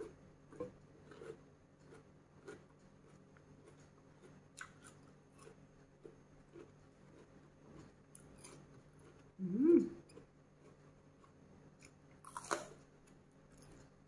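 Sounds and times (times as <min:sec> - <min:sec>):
chewing crunchy vegetables: 0:00.0 - 0:14.0
person humming: 0:09.4 - 0:10.0.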